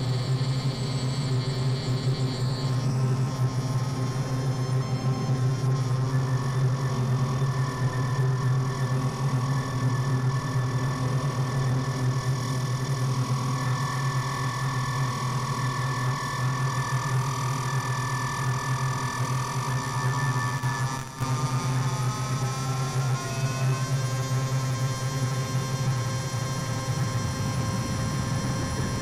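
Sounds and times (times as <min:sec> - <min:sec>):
low synthesizer hum: 0:21.2 - 0:29.0
sustained high synth tones: 0:25.0 - 0:29.0.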